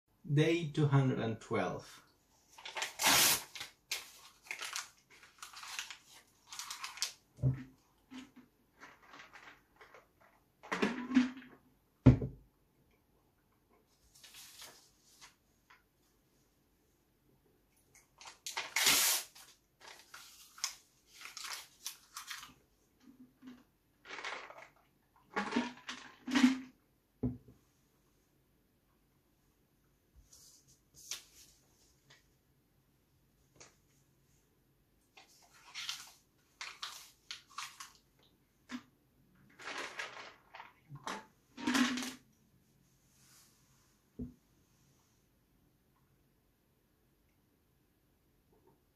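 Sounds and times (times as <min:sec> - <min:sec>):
paper tearing bite: 0:02.7 - 0:03.7, 0:18.6 - 0:19.4
person chewing crinkling paper: 0:04.2 - 0:07.2.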